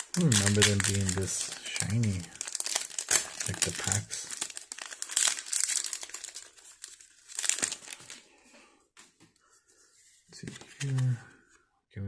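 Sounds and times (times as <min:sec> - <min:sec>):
foil wrapper crinkling: 0:00.0 - 0:08.3.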